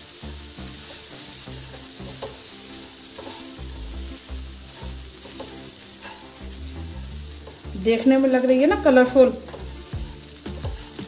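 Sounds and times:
background music: 0.0s - 11.0s
light sizzle: 0.0s - 11.0s
spatula scraping a pan: 0.1s - 7.8s.

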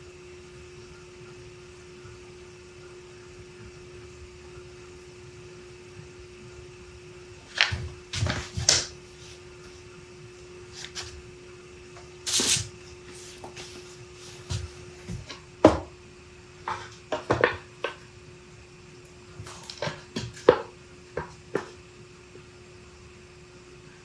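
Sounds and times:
steady hum: 0.0s - 24.0s
knocks on wooden workbench: 15.2s - 15.9s.

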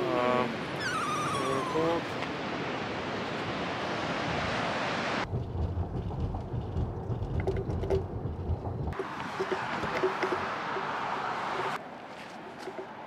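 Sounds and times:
tyre and road rumble: 5.2s - 13.0s.

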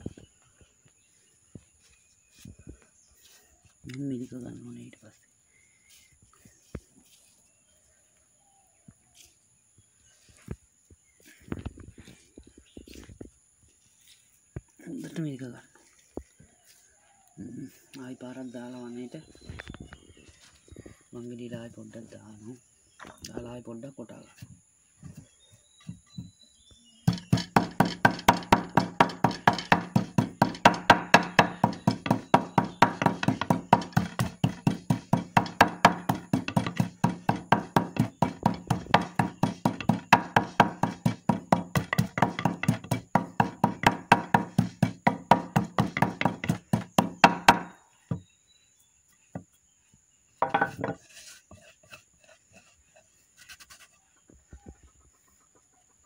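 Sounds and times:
pestle pounding in mortar: 27.0s - 48.2s.

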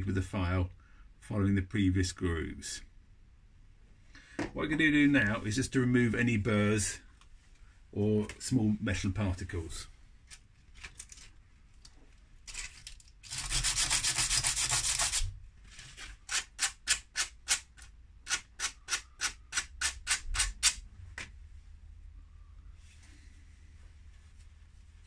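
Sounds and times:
metal scraping on sandpaper: 13.2s - 16.5s.

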